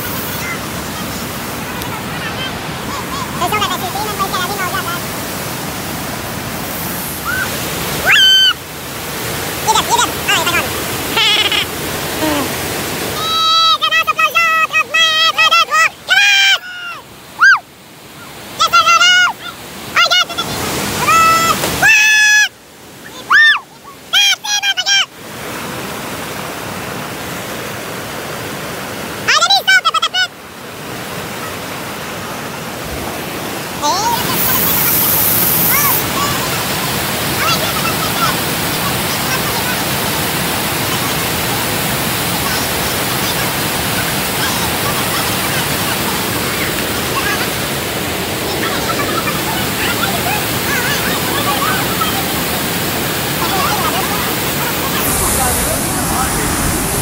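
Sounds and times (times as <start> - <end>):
waterfall pouring over rocks: 0.0 - 17.4, 18.3 - 23.9, 30.6 - 57.0
whitewater rapids rushing: 0.0 - 57.0
men shouting and whooping: 8.0 - 8.6.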